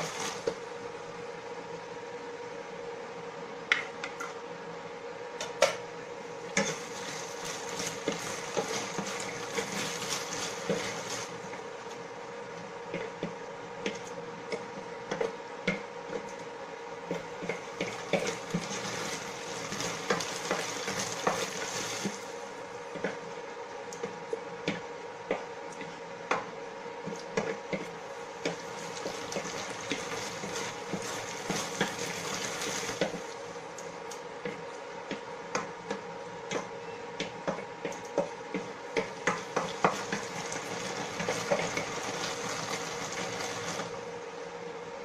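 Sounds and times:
paste sizzling in oil: 17.8 - 22.4.

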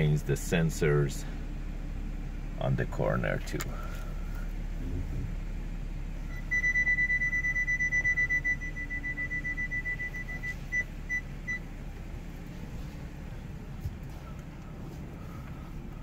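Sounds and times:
low steady hum: 0.0 - 16.0
parking sensor beeping: 6.2 - 12.4.

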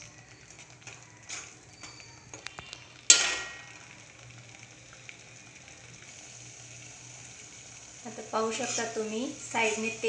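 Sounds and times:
metal ladle clinking in a pot: 3.1 - 3.7.

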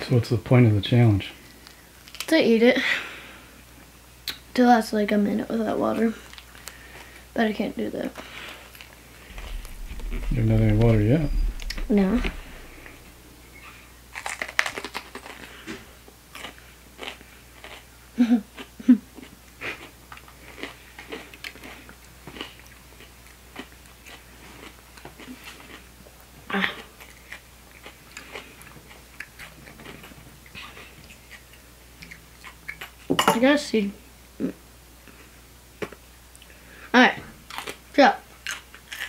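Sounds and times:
pepper crunching while chewed: 37.5 - 37.8, 38.4 - 39.0.

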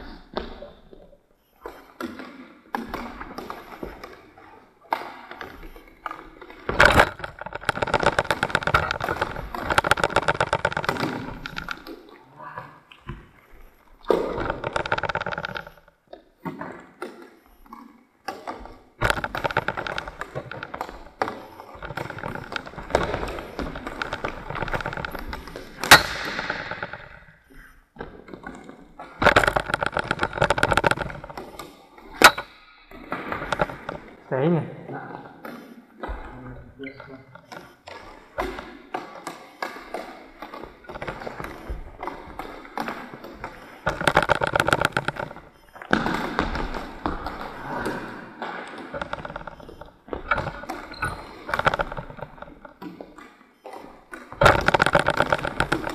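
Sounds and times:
scuffing and sliding on hall floor: 0.0 - 34.3
clatter of many clicks: 1.6 - 12.0, 12.9 - 34.2, 36.9 - 55.9
plastic sticks and ball knocking: 2.0 - 12.2, 13.0 - 17.3, 18.3 - 34.2, 35.4 - 55.9.

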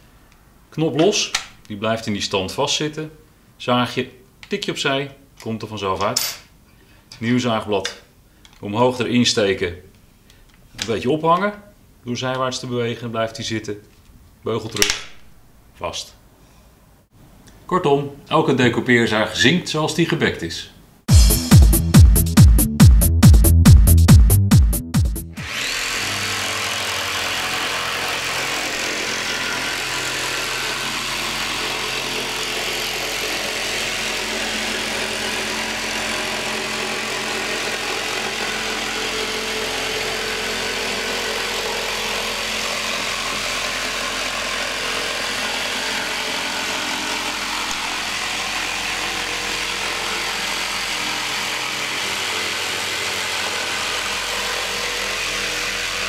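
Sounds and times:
jigsaw cutting wood: 25.3 - 56.0.

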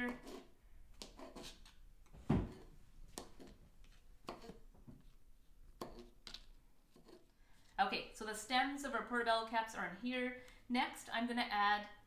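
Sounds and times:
knife chopping on cutting board: 4.2 - 4.6.

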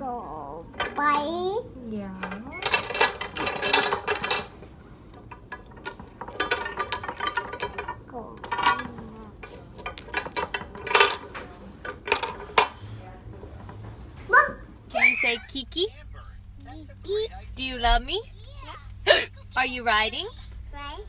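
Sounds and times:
beads clacking on wires: 0.8 - 13.0.

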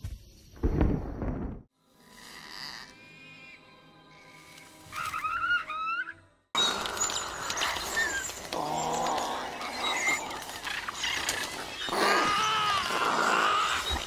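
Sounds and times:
creatures chirping and squealing: 4.9 - 14.0.

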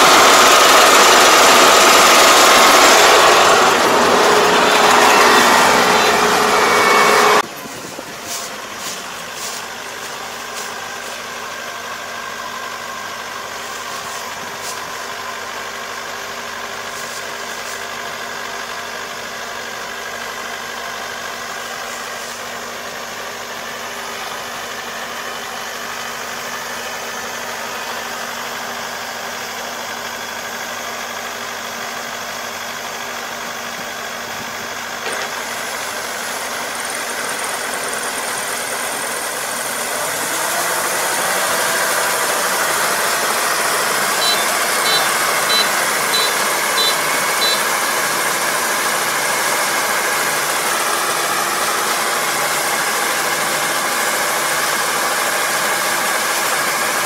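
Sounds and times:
auger discharging grain: 0.0 - 57.0
diesel engine running: 0.0 - 57.0.

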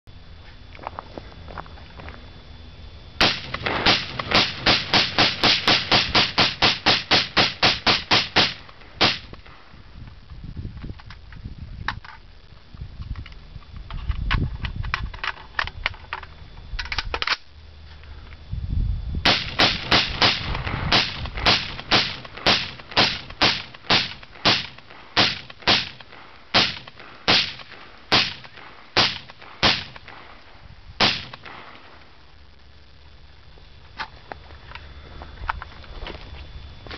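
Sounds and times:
rifle shots: 3.2 - 9.4, 19.3 - 30.4, 31.0 - 31.9.

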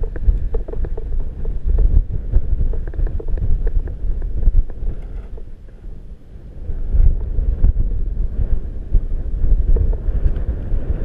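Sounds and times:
small ticks and rattles: 0.0 - 5.8
gusty wind buffeting microphone: 0.0 - 11.0.

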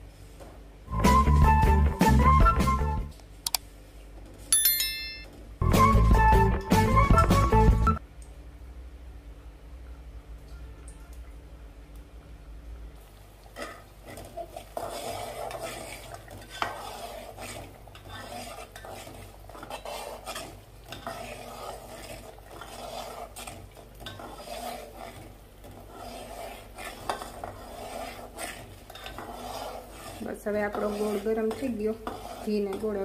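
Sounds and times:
metal spatula scraping pot: 13.6 - 33.0.

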